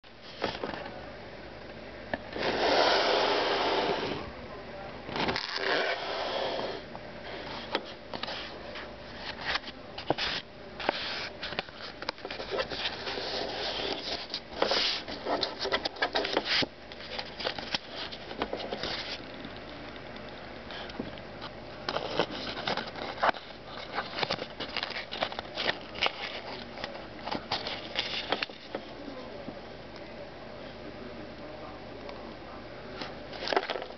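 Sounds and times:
card rustling and scraping: 0.2s - 0.8s, 2.3s - 4.2s, 5.1s - 19.5s, 20.7s - 29.2s, 33.0s - 33.9s.

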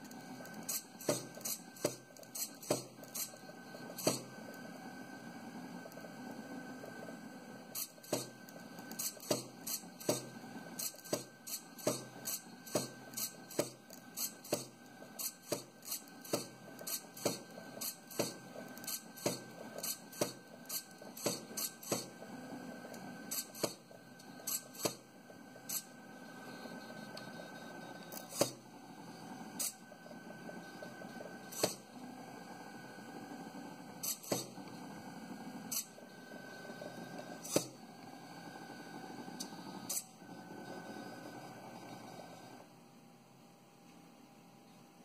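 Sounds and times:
plotter motor whine: 0.0s - 42.8s.

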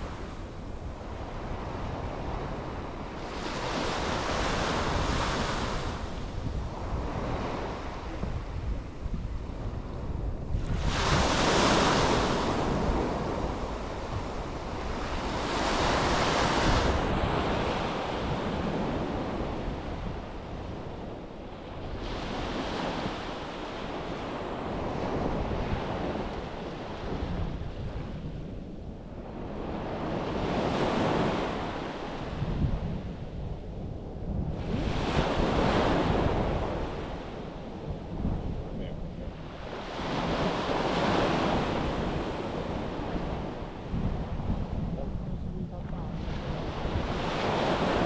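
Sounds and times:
sea waves breaking on beach: 0.0s - 28.2s, 39.3s - 44.6s, 46.1s - 48.0s
wind rumbling on microphone: 0.0s - 48.0s.

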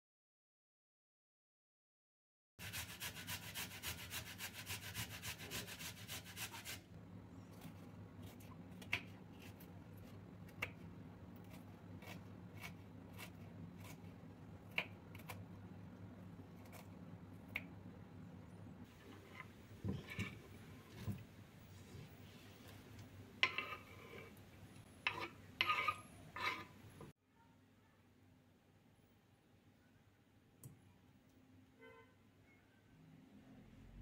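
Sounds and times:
carrots being grated: 2.6s - 6.9s, 11.4s - 15.4s, 25.0s - 26.8s.

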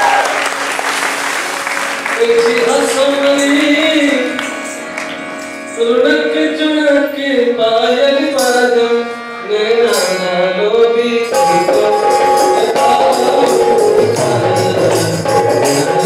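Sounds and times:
harmonium: 0.6s - 16.0s
person singing folk melody: 2.1s - 16.0s
drum accompaniment: 11.3s - 16.0s.

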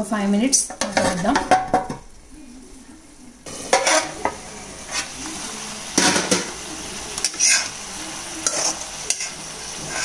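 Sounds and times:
curry sizzling in a pan: 0.0s - 10.0s
steel spoon scraping a pan: 3.7s - 5.2s, 7.2s - 7.8s, 8.4s - 10.0s.

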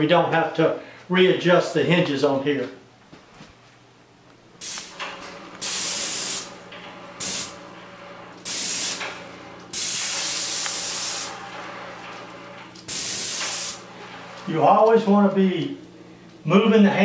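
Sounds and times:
low steady hum: 0.0s - 17.0s
paint sprayer hissing bursts: 4.6s - 6.6s, 7.2s - 7.6s, 8.4s - 11.9s, 12.7s - 14.0s.

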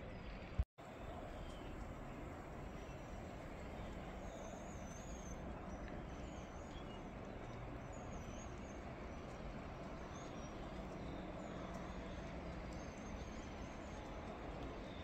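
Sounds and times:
distant traffic rumble: 0.0s - 15.0s.

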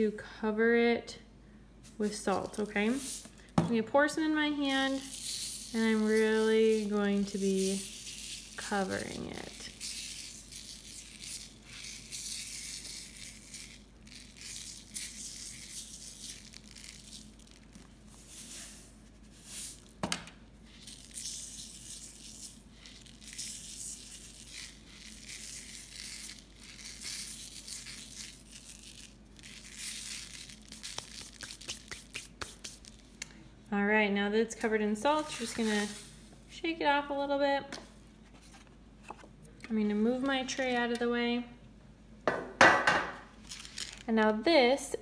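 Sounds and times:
grainy hiss of salt rubbing: 1.8s - 3.4s, 4.7s - 20.0s, 20.6s - 33.2s, 35.1s - 36.3s.

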